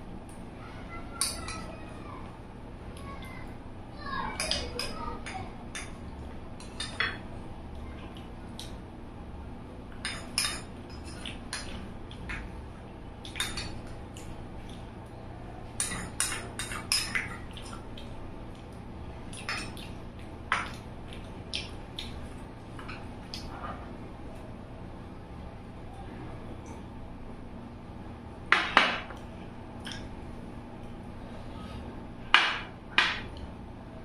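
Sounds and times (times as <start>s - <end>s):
cutlery clinking against a plate: 1.2s - 1.7s, 4.4s - 6.0s, 6.6s - 7.2s, 10.0s - 12.5s, 13.2s - 14.8s, 15.8s - 17.8s, 19.3s - 22.1s.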